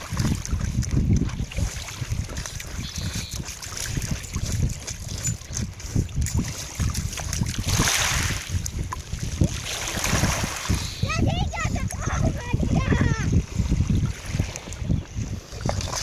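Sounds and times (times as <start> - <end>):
water splash: 0.0 - 5.2, 6.2 - 11.0, 15.5 - 16.0
water lapping at shore: 0.0 - 16.0
wind buffeting microphone: 0.0 - 16.0.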